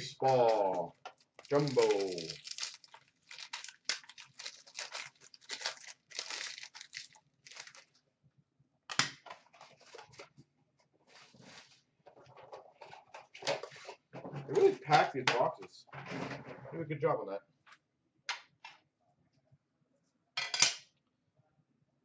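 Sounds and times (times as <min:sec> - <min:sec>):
plastic wrapping crinkling and tearing: 0:00.0 - 0:08.0.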